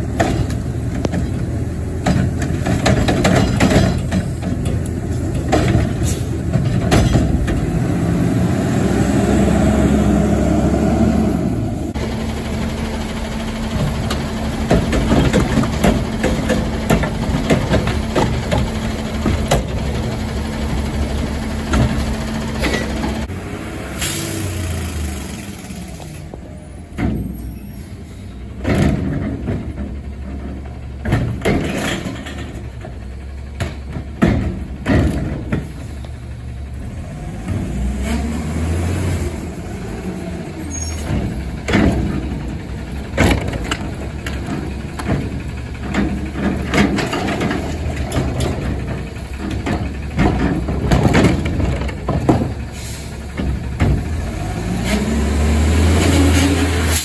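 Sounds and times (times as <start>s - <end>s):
garbage truck diesel engine: 0.0s - 57.0s.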